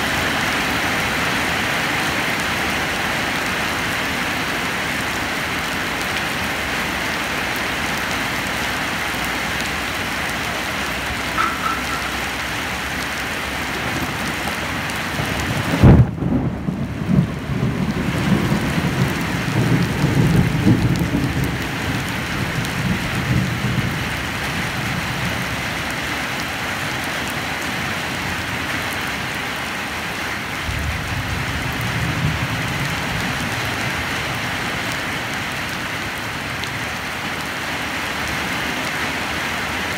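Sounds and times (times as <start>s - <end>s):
rain on wet ground and leaves: 0.0s - 39.9s
thunderclap: 15.1s - 23.9s
rolling thunder: 15.1s - 24.2s, 30.6s - 33.8s.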